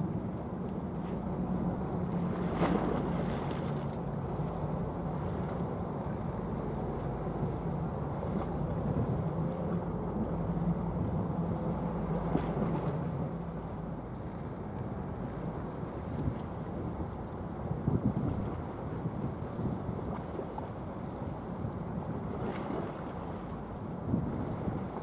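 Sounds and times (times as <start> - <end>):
ship engine drone: 0.0 - 25.0
wind on microphone: 15.8 - 25.0.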